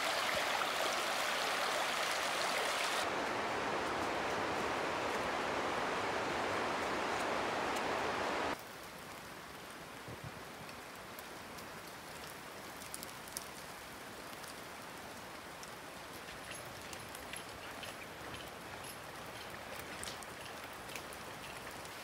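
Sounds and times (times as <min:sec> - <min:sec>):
river rushing over rocks: 0:00.0 - 0:08.6.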